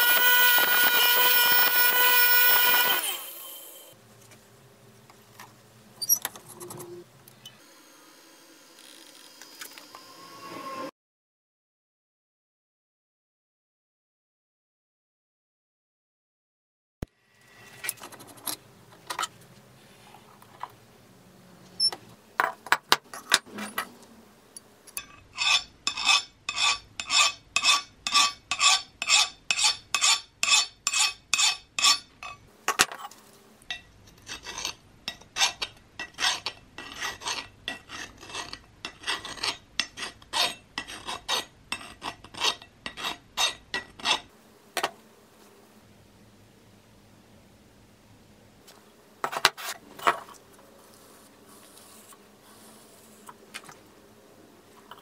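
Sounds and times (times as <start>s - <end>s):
file rasping on metal: 0.0s - 3.2s, 25.3s - 32.4s, 34.2s - 34.8s, 35.4s - 44.3s
scattered clicks and scrapes: 17.7s - 19.4s.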